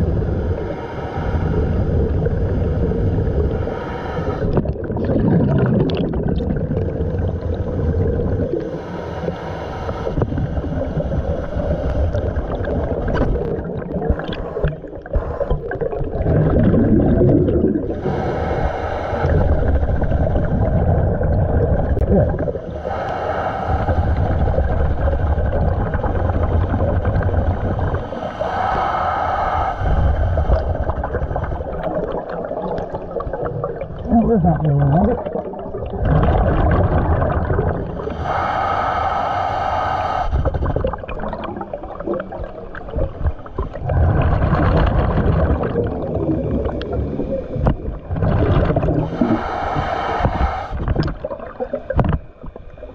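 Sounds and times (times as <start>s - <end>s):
hissing regulator inhale: 0.0s - 4.6s, 7.3s - 13.5s, 14.1s - 15.7s, 17.8s - 20.9s, 22.6s - 32.1s, 37.9s - 41.8s, 48.7s - 51.2s
rumble of exhaled bubbles: 0.0s - 9.3s, 9.9s - 39.2s, 40.3s - 52.9s.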